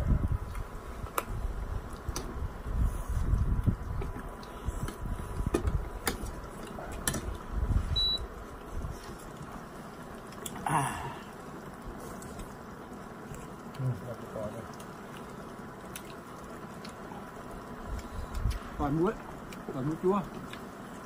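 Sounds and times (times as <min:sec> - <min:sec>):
high beep: 0:08.0 - 0:08.2.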